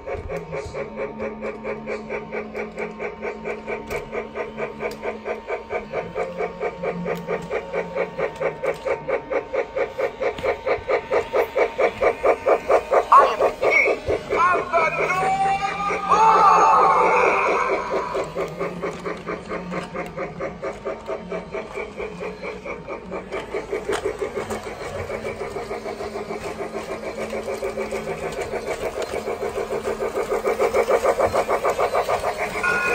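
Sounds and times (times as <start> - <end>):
toy train rhythmic pulsing: 0.0 - 32.9.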